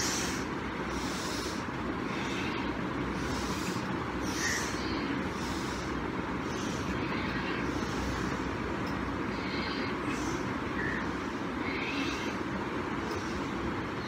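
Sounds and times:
low rumble and hiss: 0.0 - 14.0.

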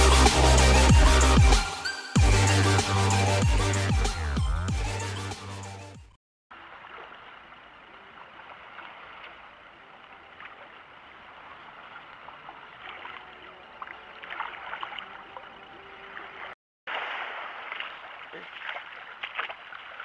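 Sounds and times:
seawater sloshing around rocks: 6.5 - 20.0.

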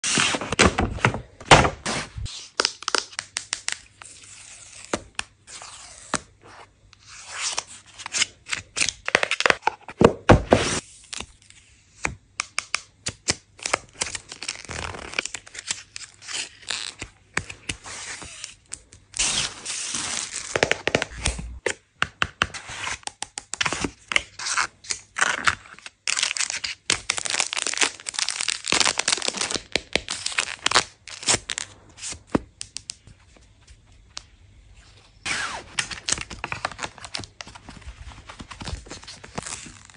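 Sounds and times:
plastic wrappers crinkling: 26.0 - 31.6.

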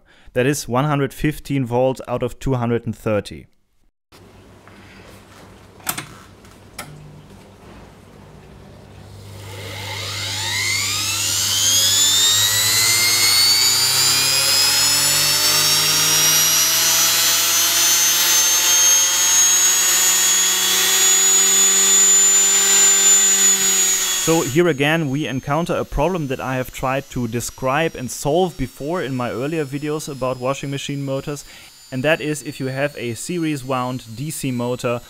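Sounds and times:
electric motor high whine: 8.2 - 35.0.

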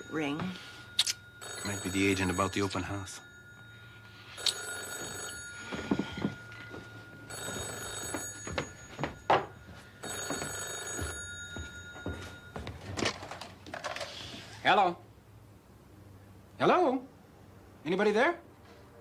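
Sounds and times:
telephone ringing: 0.0 - 14.0.

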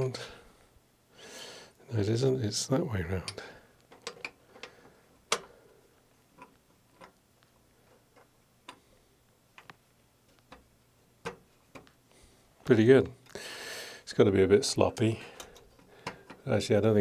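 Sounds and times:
metal-on-metal clicks and taps: 3.2 - 4.7, 5.3 - 5.5, 9.6 - 12.0.

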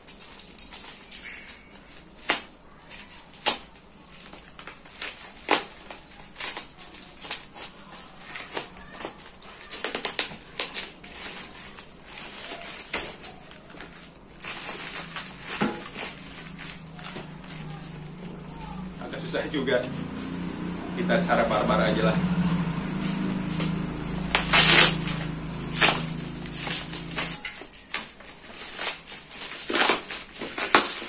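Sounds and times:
cardboard package clicks and crinkles: 0.0 - 19.2, 23.5 - 31.0
cardboard tearing rustle: 0.0 - 20.7, 22.9 - 31.0
cardboard snapping: 3.4 - 18.1, 23.6 - 31.0.

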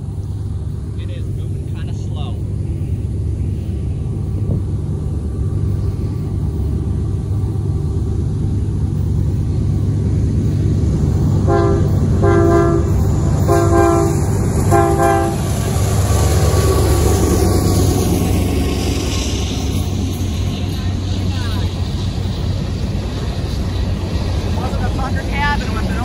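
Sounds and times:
train rumbling: 0.0 - 26.0
air horn blasts: 11.4 - 15.5.

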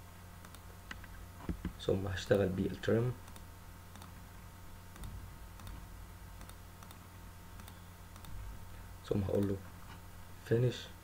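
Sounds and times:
low electrical hum: 0.0 - 11.0
faint computer mouse clicks: 6.4 - 7.0, 7.6 - 8.4.

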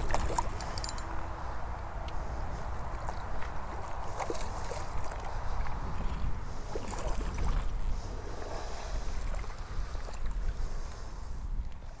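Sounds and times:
wind buffeting microphone: 0.0 - 12.0
faint splashes: 2.9 - 7.8.

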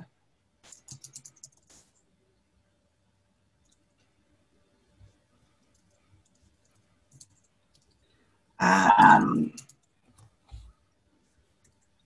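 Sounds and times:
computer keyboard keystrokes: 0.7 - 1.9, 5.7 - 8.0, 9.5 - 10.3
person's short vocal sound: 8.6 - 9.6.

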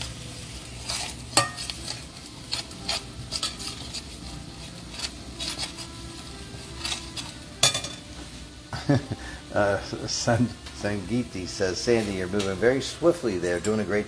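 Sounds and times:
onions sizzling: 0.0 - 14.0
metal spoon scraping frying pan: 0.4 - 8.2.

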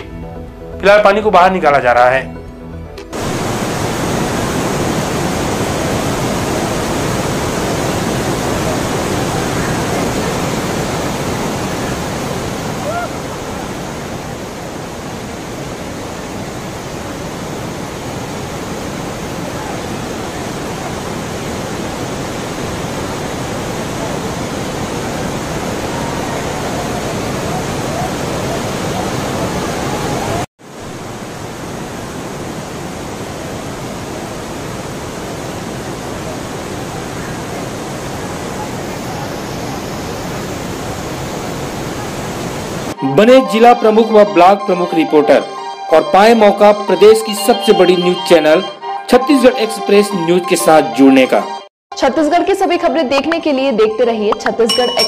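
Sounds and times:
heavy rain and running water: 3.1 - 43.0.

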